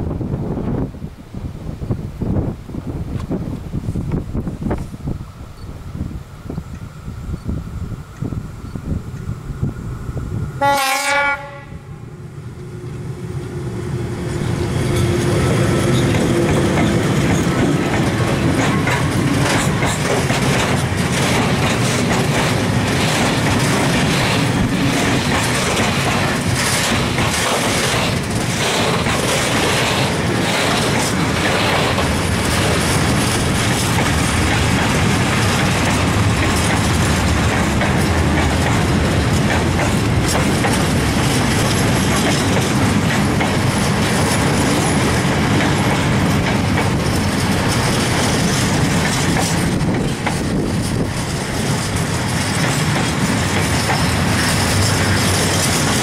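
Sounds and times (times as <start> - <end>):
freight train rumble: 0.0 - 56.0
locomotive horn blast: 10.6 - 12.1
wheels clacking over rail joints: 13.9 - 56.0.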